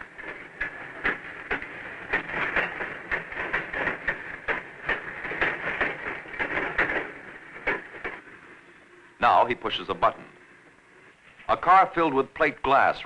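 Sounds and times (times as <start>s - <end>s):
train wheels clicking over rail joints: 0.0s - 8.5s
rolling hiss of train car: 0.0s - 13.0s.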